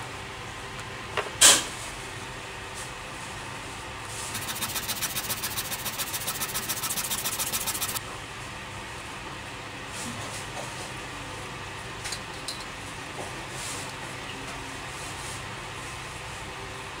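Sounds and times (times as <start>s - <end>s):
wood rubbed on sandpaper: 4.3s - 8.0s.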